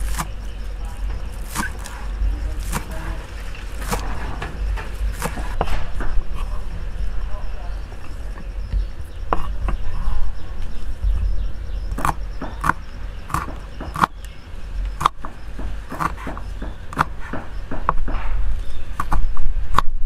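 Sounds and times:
knife chopping on wooden board: 0.0s - 0.4s, 1.4s - 3.1s, 3.8s - 4.2s, 5.1s - 6.1s, 12.0s - 14.2s, 15.0s - 18.4s, 19.0s - 19.9s
faint insect trill: 0.0s - 20.0s.

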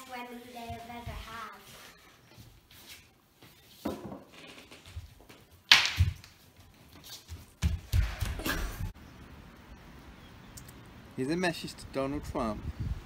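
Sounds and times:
children scuffling on wooden floor: 0.0s - 8.9s.

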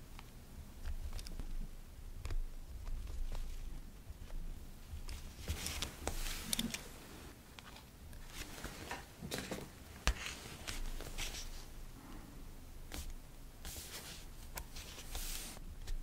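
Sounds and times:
paper handling: 5.0s - 7.0s, 7.6s - 11.7s, 12.9s - 16.0s.

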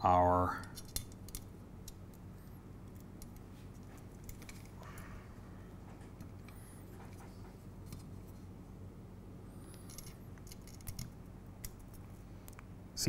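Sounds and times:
low electrical hum: 0.0s - 13.0s
metal parts clicking and tapping: 0.6s - 2.2s, 2.9s - 4.8s, 9.7s - 12.6s.

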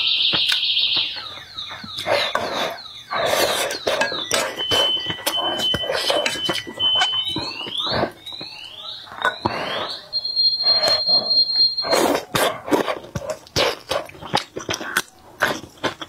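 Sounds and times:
high whistling tone: 0.0s - 12.3s
person chewing food: 0.3s - 16.0s.

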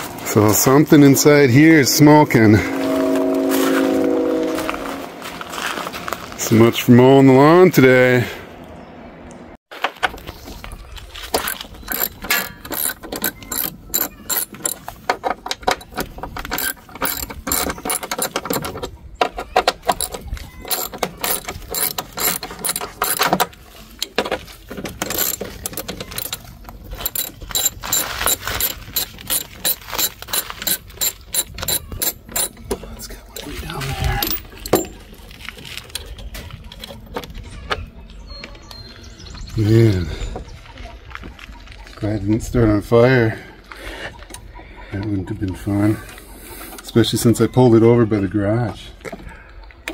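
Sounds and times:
socket ratchet clicking: 11.4s - 18.7s, 19.8s - 23.4s, 25.0s - 32.6s.

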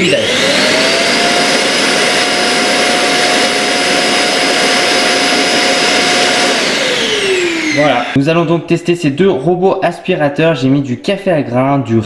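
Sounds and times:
suction motor with high whine: 0.0s - 8.2s.

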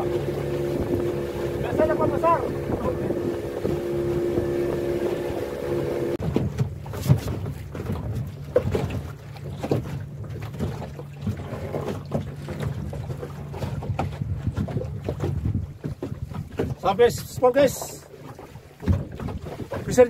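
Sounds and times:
wind on microphone: 0.0s - 8.2s, 13.5s - 17.8s
boat engine running: 0.0s - 20.0s.

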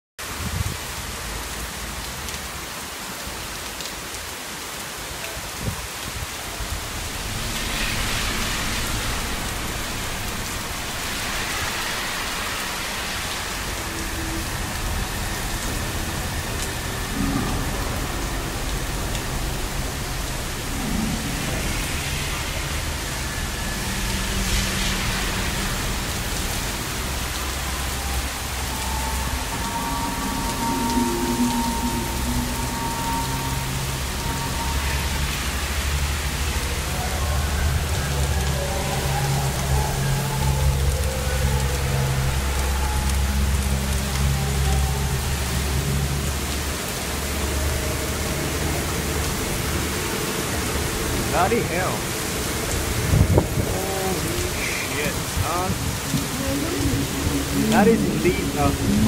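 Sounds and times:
heavy rain pouring on pavement: 0.2s - 59.0s
low thunder rumble: 6.5s - 43.9s, 52.6s - 54.6s.

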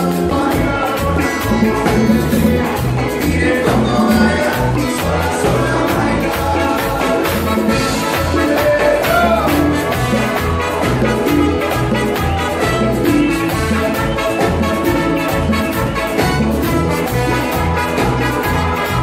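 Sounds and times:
live band playing latin dance music: 0.0s - 19.0s
repeating bass line: 0.0s - 19.0s.

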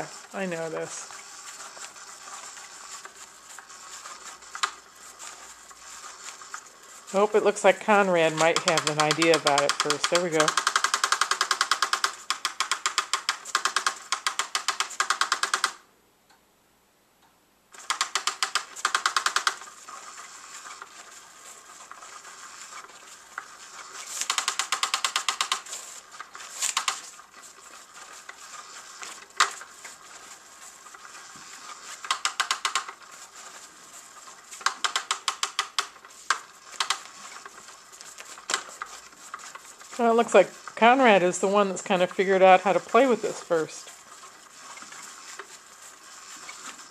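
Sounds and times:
toy motor ticking rapidly: 0.0s - 15.8s, 17.8s - 30.4s, 31.1s - 33.5s, 34.5s - 37.5s.

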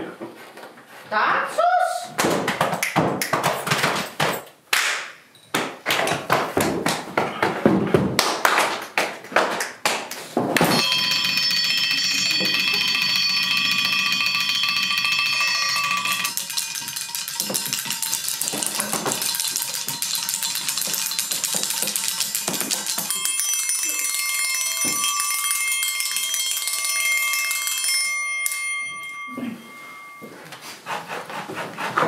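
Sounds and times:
metal triangles ringing: 10.7s - 30.3s.

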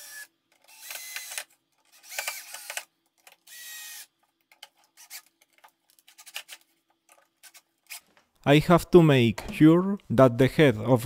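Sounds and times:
cordless drill driving screws: 0.0s - 2.9s, 3.5s - 4.1s.

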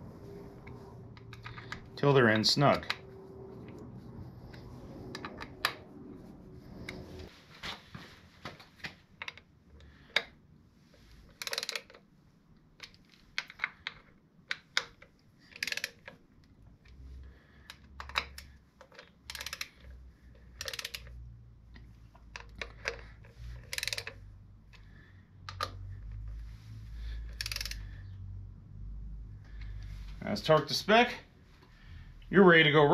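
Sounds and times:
hand ratchet clicking: 11.3s - 12.0s, 14.5s - 16.2s, 17.7s - 21.2s, 22.3s - 24.9s, 27.2s - 28.0s.

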